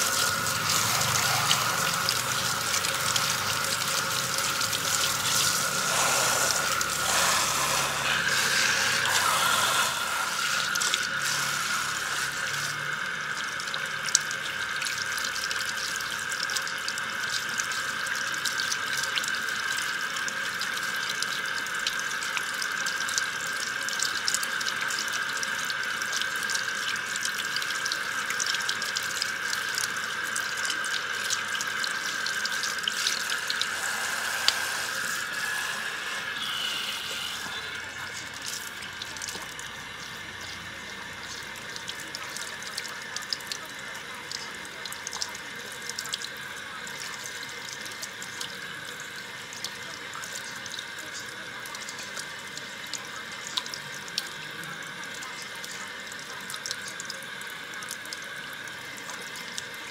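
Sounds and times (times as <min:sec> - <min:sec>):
shower sprayer hissing: 0:00.0 - 0:13.3, 0:32.0 - 0:41.5
water splashing and dripping: 0:00.0 - 0:23.2, 0:37.7 - 0:46.4.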